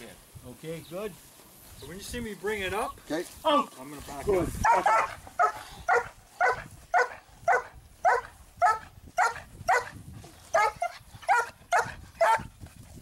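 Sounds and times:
puppy barking: 0:04.6 - 0:12.5.

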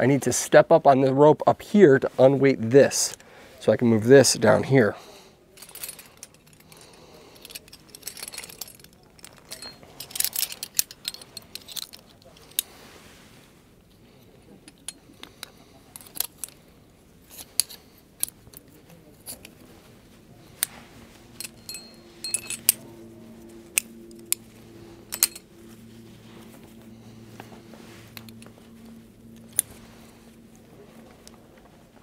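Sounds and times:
metal carabiners clinking: 0:05.6 - 0:12.8, 0:13.9 - 0:32.0.

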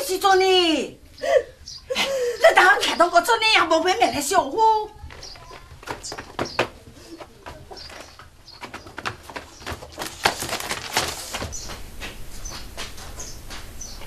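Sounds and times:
scuffling footsteps: 0:04.9 - 0:14.0.

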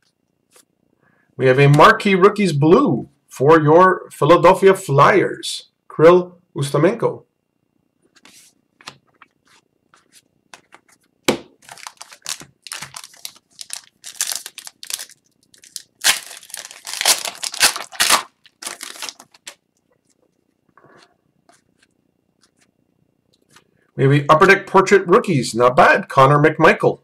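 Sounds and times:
crinkly wrapper tearing: 0:11.6 - 0:19.6.

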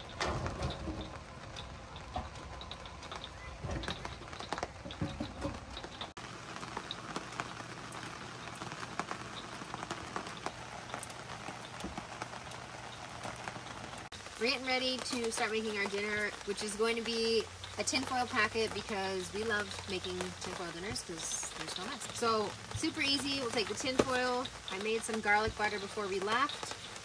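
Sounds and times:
metal grill grate clunk: 0:00.0 - 0:02.6
light rain pattering: 0:00.0 - 0:27.0.

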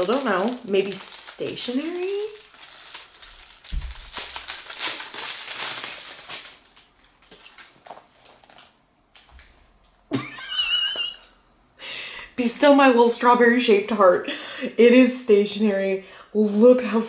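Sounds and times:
gift packaging crinkling: 0:00.0 - 0:08.8.

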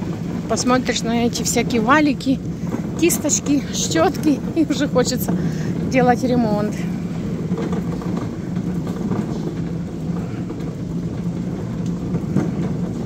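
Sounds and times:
constant low hum: 0:00.0 - 0:13.0
shopping cart wheels rumbling: 0:00.0 - 0:13.0.

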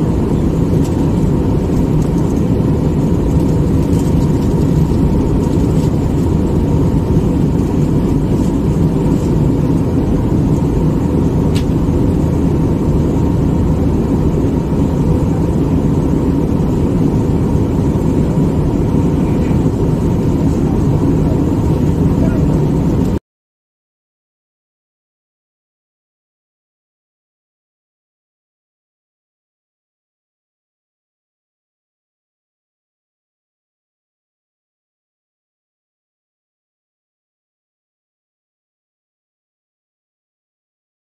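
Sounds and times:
faint steady whine: 0:00.0 - 0:23.2
jet cabin engine drone: 0:00.0 - 0:23.2.

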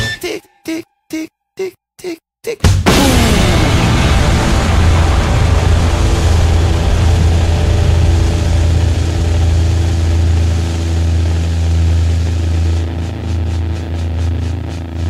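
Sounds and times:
low drone of held tones: 0:03.2 - 0:15.0.

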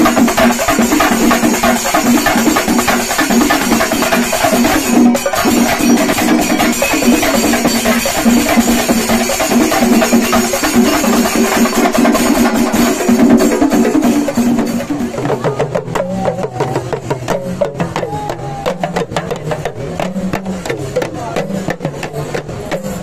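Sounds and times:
cymbals clashing: 0:00.0 - 0:23.0
drums played fast: 0:00.0 - 0:23.0
crowd voices: 0:14.5 - 0:23.0.

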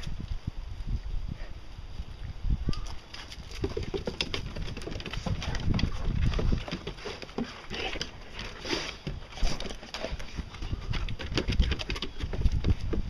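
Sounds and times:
dog claws clicking on wood: 0:03.2 - 0:13.0
footsteps on wooden stairs: 0:03.6 - 0:13.0.

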